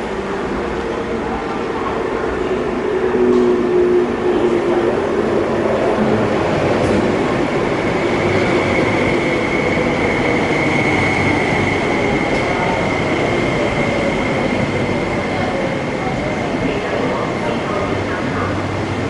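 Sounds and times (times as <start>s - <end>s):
electric train whining as it slows: 0.0s - 19.0s.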